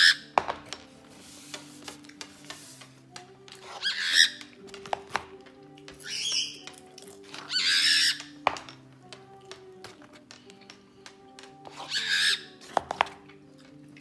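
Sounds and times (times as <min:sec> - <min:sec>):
cockatiel squawking: 0:00.0 - 0:00.2, 0:03.7 - 0:04.5, 0:06.0 - 0:06.7, 0:07.5 - 0:08.4, 0:11.7 - 0:12.6
background music with low notes: 0:00.0 - 0:14.0.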